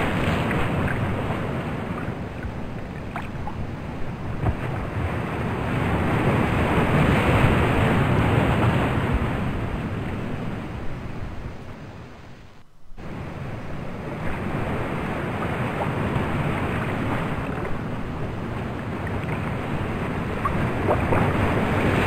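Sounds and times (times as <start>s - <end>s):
ocean surf washing on beach: 0.0s - 12.4s, 13.0s - 22.0s.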